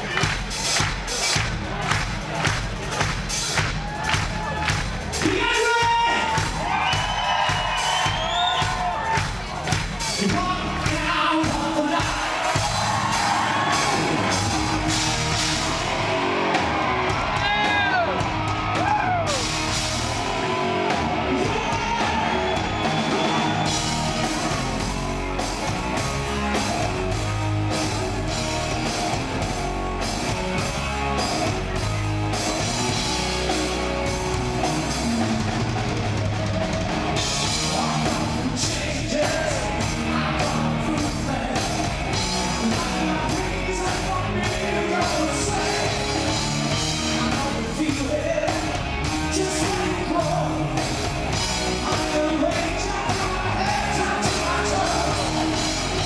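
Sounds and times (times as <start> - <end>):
bass guitar: 0.0 - 56.0
drums: 0.0 - 56.0
man singing: 10.2 - 12.6, 37.6 - 50.8, 51.7 - 56.0
electric guitar: 12.3 - 56.0.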